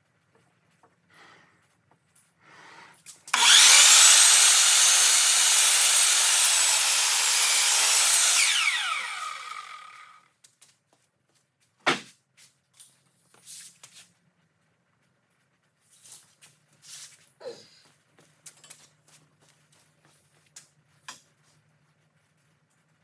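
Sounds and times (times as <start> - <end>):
miter saw cutting wood: 3.3 - 10.2
saw blade spinning down whine: 3.3 - 10.2.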